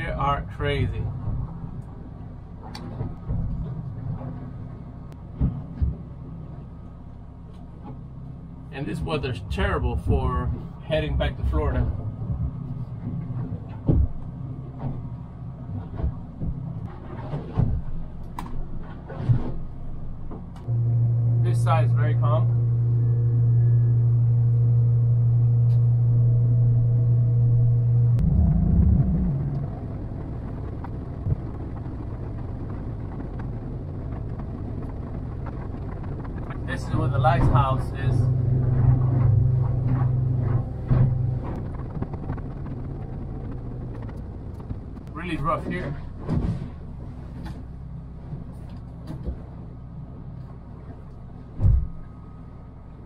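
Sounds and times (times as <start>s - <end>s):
boat engine running: 0.0s - 53.0s
heavy low thump: 11.3s - 15.2s, 20.3s - 45.1s, 51.6s - 52.1s.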